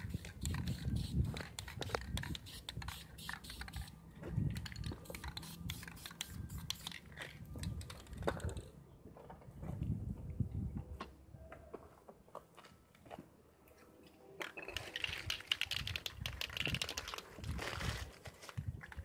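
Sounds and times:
wind rumble on microphone: 0.0 - 3.0, 4.2 - 6.5, 9.4 - 11.5, 15.2 - 19.0.

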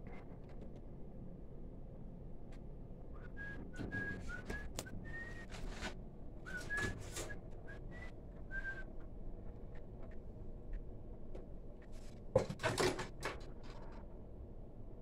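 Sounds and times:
person whistling quietly: 3.1 - 5.7, 6.4 - 8.9.

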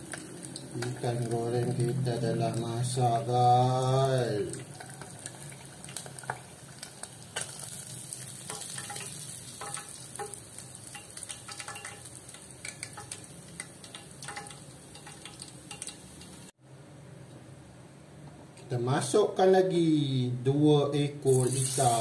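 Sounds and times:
hot oil sizzling and crackling: 0.0 - 16.6, 21.2 - 22.0
metal tongs clinking: 8.4 - 16.1.

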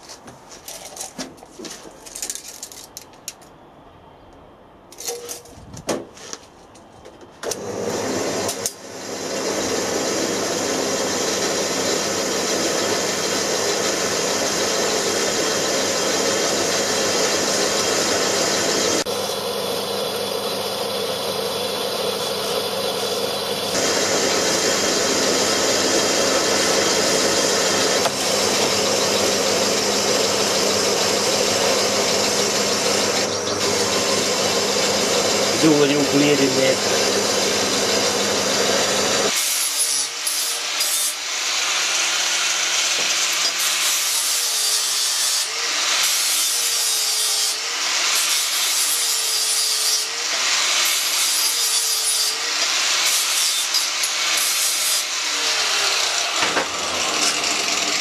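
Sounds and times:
band saw cutting steel tube: 7.5 - 58.0.

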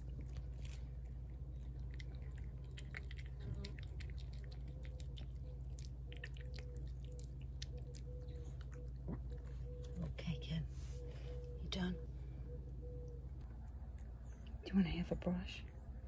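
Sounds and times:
cat chewing wet food: 0.0 - 9.3.

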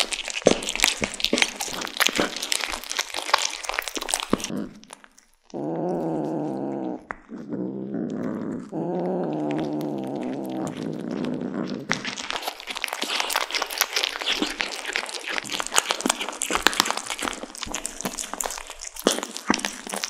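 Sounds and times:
cats chewing and crunching: 0.0 - 20.0
cat purring rumble: 5.5 - 13.6.

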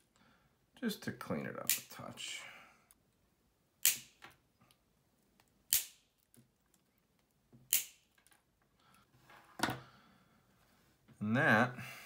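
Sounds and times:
wire cutters snipping wire: 7.7 - 8.1.

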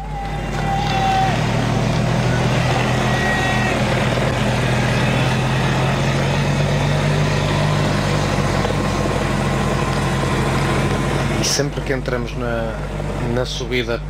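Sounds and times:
motor vehicle engine hum: 0.0 - 14.0.

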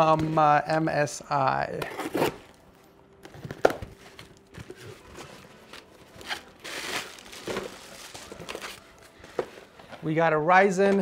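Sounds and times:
cardboard tearing and crinkling: 3.3 - 8.8.

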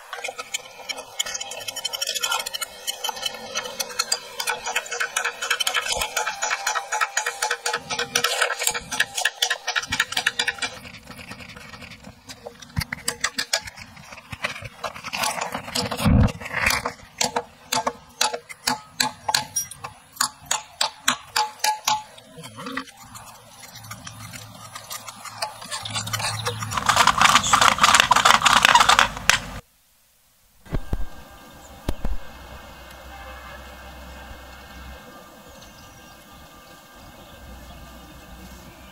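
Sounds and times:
rustling scraping noise: 0.0 - 18.6, 22.0 - 29.6.

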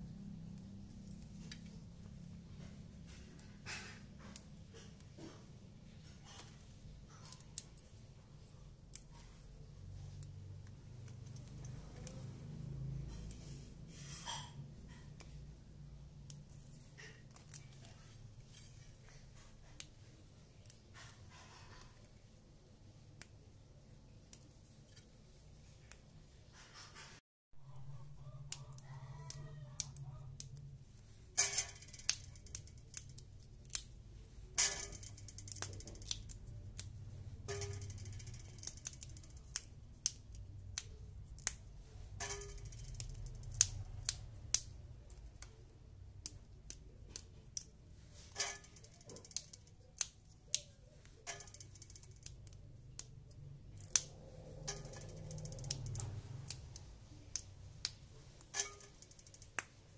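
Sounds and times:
green beans snapping: 28.2 - 30.7, 31.4 - 59.7.

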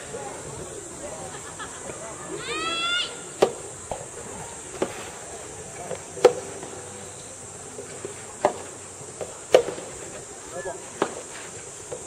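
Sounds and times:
insects droning: 0.0 - 12.0
rackets hitting ball: 3.3 - 5.0, 5.7 - 6.9, 7.8 - 10.2.

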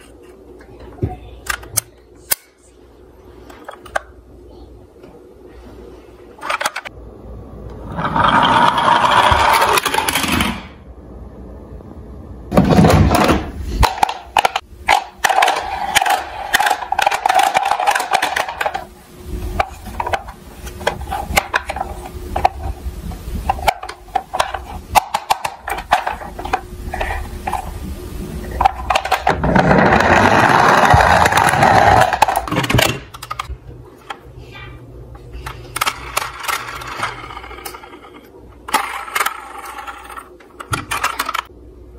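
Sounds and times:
toy cars rolling down wooden ramp: 7.9 - 10.6, 28.6 - 32.8
plastic toys clicking and knocking: 12.6 - 18.9, 23.5 - 27.7, 28.6 - 33.5, 35.4 - 38.0, 38.7 - 41.5.

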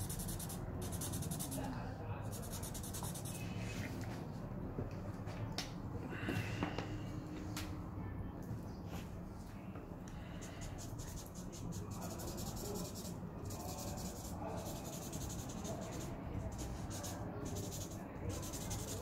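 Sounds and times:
marker scribbling on paper: 0.0 - 1.7, 2.3 - 3.7, 10.4 - 19.0.

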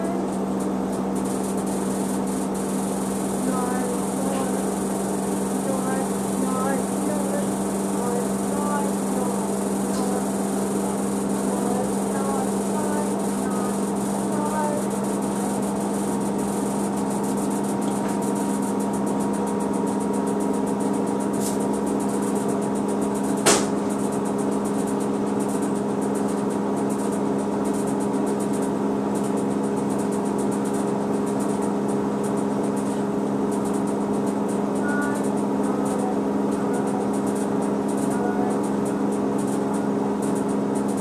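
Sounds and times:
washing machine humming: 0.0 - 41.0
sharp knock: 23.4 - 23.8.

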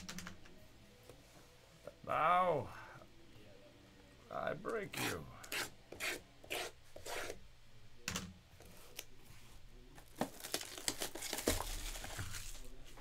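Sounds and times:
plastic wrap crinkling: 10.1 - 12.9.

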